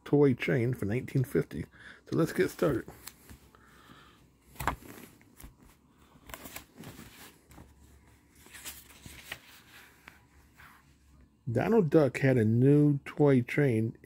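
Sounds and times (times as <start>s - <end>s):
paper pages rustling: 2.2s - 3.5s, 4.5s - 10.8s.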